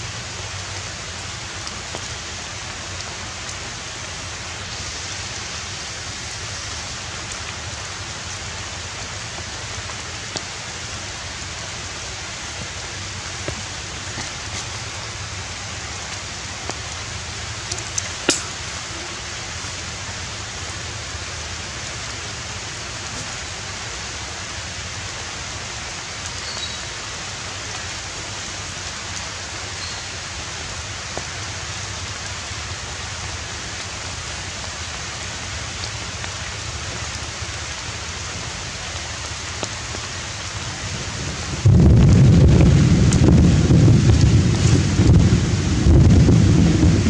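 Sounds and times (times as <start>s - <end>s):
outdoor hiss like light rain: 0.0s - 47.0s
loud low rumble: 40.9s - 47.0s.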